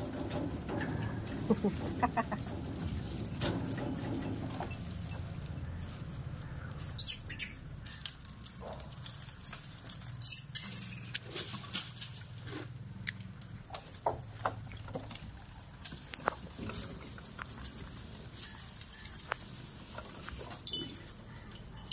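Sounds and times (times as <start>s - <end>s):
clicks and scrapes on metal grille: 0.0s - 21.9s.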